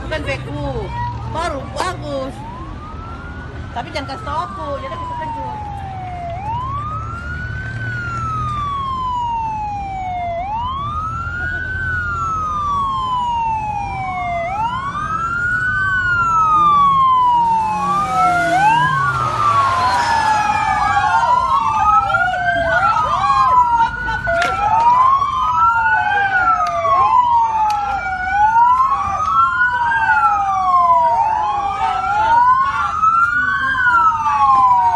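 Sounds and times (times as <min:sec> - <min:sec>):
police siren wailing: 0:00.0 - 0:34.9
second siren quicker sweeps: 0:16.0 - 0:21.8.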